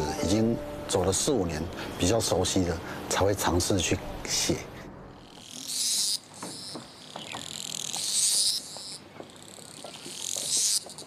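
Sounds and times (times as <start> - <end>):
cicada buzzing: 5.1 - 11.0.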